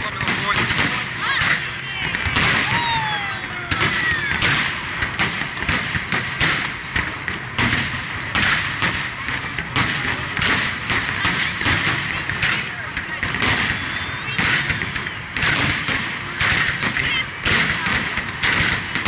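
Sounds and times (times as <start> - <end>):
falling fireworks whistles: 0.0 - 6.8, 13.3 - 19.0
fireworks bursting: 0.0 - 19.0.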